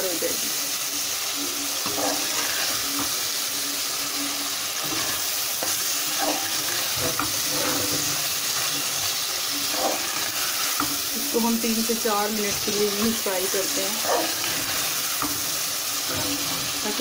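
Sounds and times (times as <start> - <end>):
vegetables sizzling in oil: 0.0 - 17.0
spatula scraping a metal pan: 1.8 - 3.2, 4.8 - 11.5, 12.4 - 17.0.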